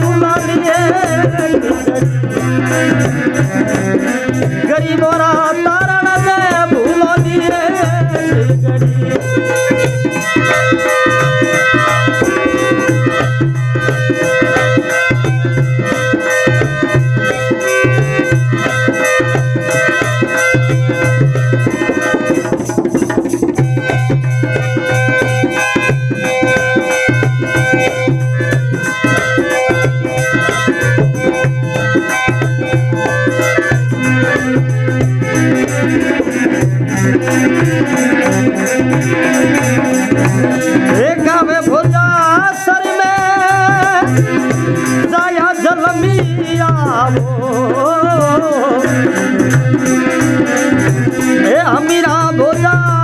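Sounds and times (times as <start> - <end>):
person singing: 0.0 - 3.7, 4.6 - 9.6, 40.8 - 49.2, 51.4 - 53.0
hand drum steady rhythm: 0.0 - 53.0.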